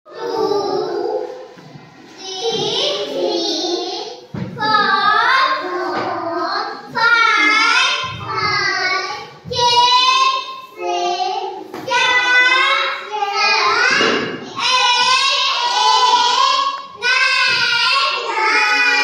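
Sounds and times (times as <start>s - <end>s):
young child singing: 2.1s - 19.0s.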